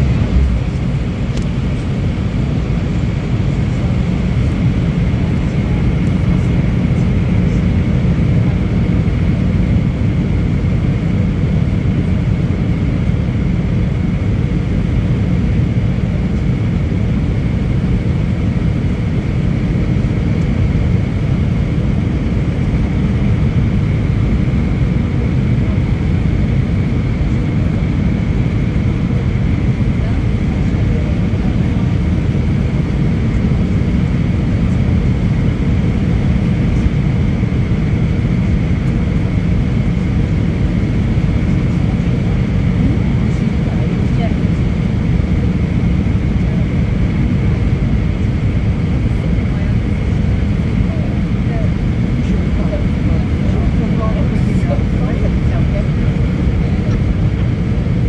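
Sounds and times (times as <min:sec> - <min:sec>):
airflow rush: 0:00.0 - 0:03.2
jet engine hum in cabin: 0:00.0 - 0:58.0.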